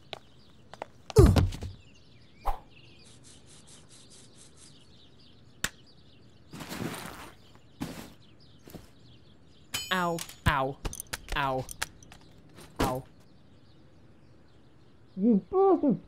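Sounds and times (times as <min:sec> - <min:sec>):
faint birdsong: 0:00.0 - 0:16.0.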